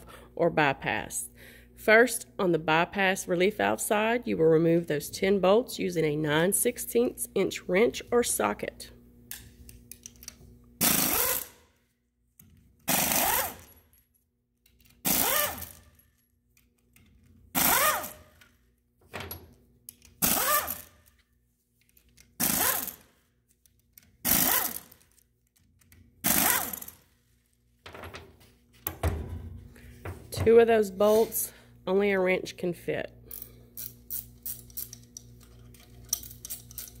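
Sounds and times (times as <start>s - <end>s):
pneumatic wrench whining: 10.8s - 11.6s, 12.9s - 13.8s, 15.0s - 15.9s, 17.5s - 18.4s, 20.1s - 21.1s, 22.4s - 23.1s, 24.2s - 25.2s, 26.2s - 27.0s.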